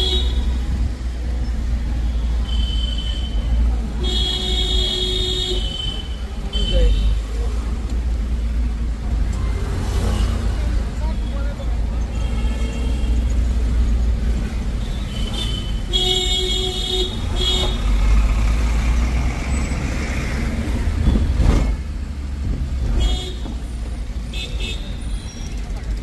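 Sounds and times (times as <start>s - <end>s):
road traffic rumbling: 0.0s - 26.0s
vehicle horn honking: 2.1s - 7.2s.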